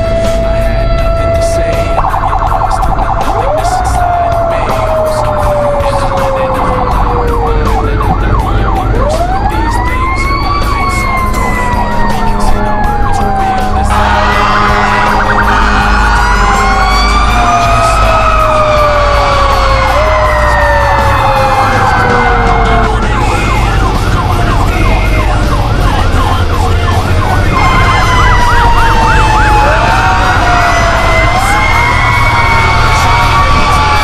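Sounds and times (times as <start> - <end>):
fast yelp siren: 0.0 - 34.0
fire truck siren wailing: 0.0 - 34.0.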